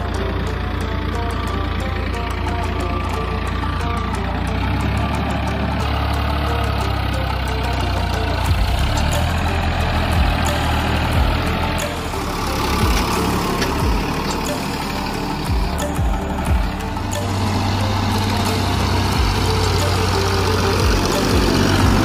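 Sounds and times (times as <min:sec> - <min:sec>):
tractor diesel engine running: 0:00.0 - 0:22.0
sharp knocks: 0:12.8 - 0:14.7.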